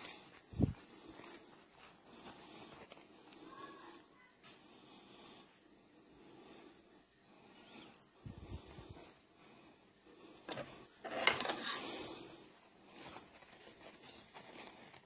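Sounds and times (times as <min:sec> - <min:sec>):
face mask rustling and scraping: 0:00.0 - 0:06.1, 0:08.2 - 0:15.0.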